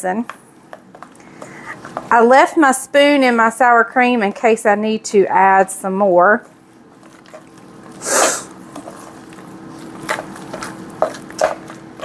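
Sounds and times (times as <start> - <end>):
cream cheese squishing while stirred: 6.4 - 12.0.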